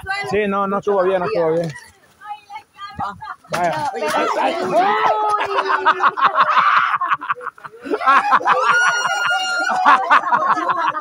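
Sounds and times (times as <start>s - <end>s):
people laughing hard: 4.1s - 11.0s.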